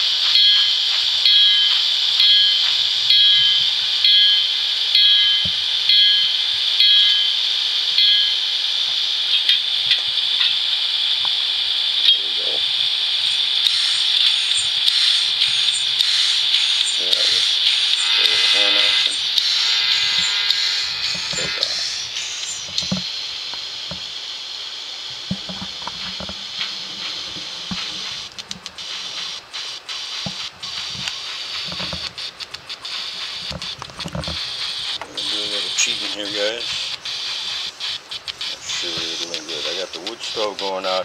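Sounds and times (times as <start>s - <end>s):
model train steam hiss: 0.0s - 41.0s
sharp clicks: 13.3s - 24.0s, 30.2s - 39.4s.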